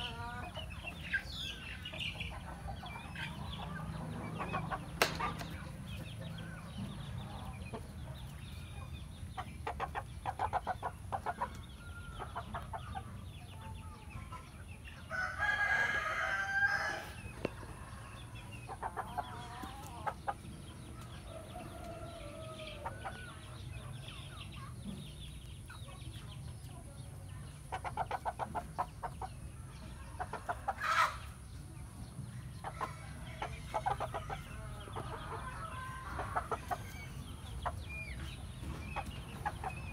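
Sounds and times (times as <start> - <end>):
rooster crowing: 15.1 - 17.1.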